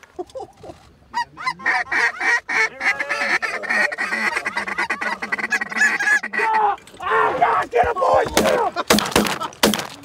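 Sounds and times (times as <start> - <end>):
flock of geese honking: 1.1 - 6.8.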